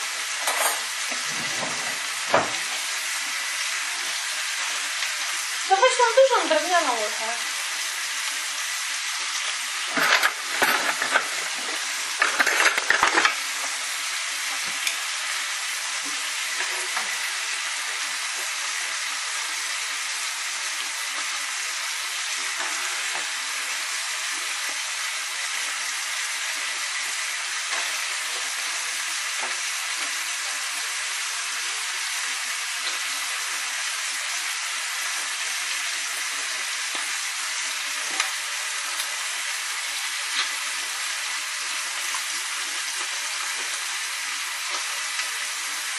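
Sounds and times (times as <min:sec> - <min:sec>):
food sizzling in a frying pan: 0:00.0 - 0:45.9
utensil clattering against pans: 0:00.4 - 0:02.6, 0:09.8 - 0:13.4.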